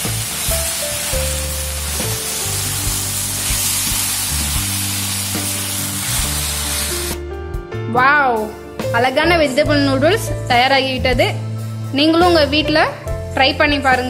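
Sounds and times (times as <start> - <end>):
noodles sizzling in pan: 0.0 - 7.2
background music: 0.0 - 14.0.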